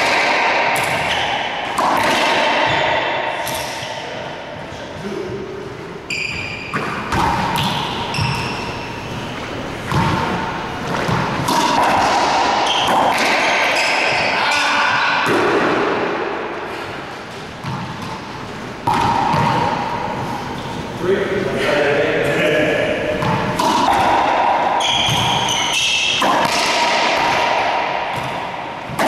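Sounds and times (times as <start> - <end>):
racquetball ball cracking: 0.0 - 4.0, 6.7 - 16.2, 17.6 - 20.2, 23.1 - 29.0
sneaker squeaks on wooden floor: 0.8 - 1.4, 6.1 - 10.3, 12.6 - 14.3, 24.8 - 26.2.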